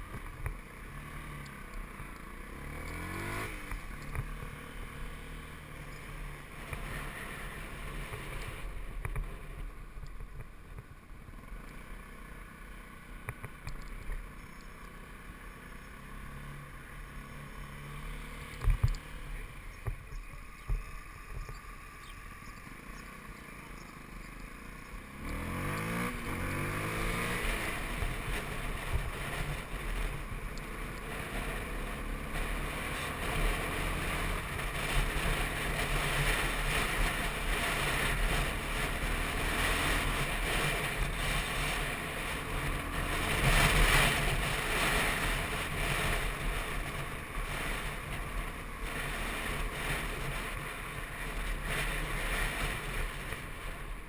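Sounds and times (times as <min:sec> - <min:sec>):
motorcycle engine revving: 0:00.0 - 0:54.0
wind and road noise: 0:00.0 - 0:54.0.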